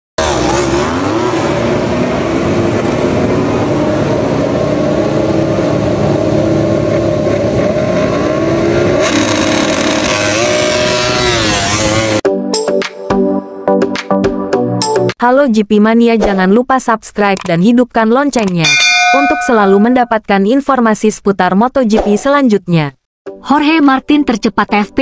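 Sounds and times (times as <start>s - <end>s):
motorcycle engines revving: 0.2s - 12.2s.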